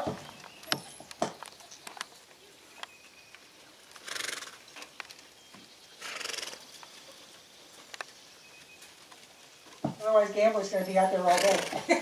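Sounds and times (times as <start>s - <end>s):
pony snorting: 4.0s - 4.6s, 6.0s - 6.6s, 11.2s - 11.9s.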